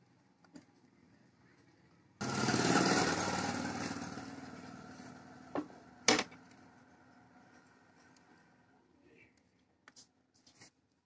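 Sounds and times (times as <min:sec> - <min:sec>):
small engine running: 0:02.2 - 0:06.0.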